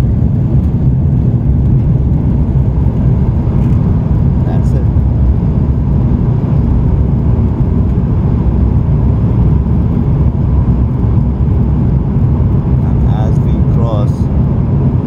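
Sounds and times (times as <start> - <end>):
faint steady whine: 0.0 - 15.0
jet engines and air rumble: 0.0 - 15.0.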